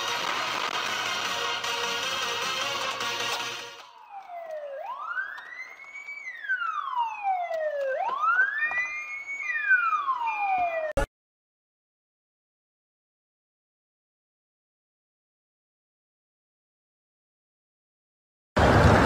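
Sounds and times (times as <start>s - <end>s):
police siren wailing: 0.0s - 11.1s
short steady siren tones: 3.8s - 11.1s.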